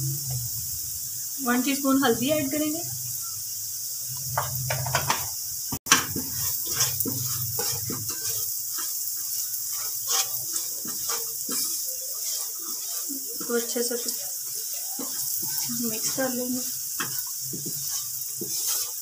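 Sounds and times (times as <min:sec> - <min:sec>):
oil sizzling in a frying pan: 0:00.0 - 0:19.0
spatula scraping a pan: 0:05.9 - 0:19.0.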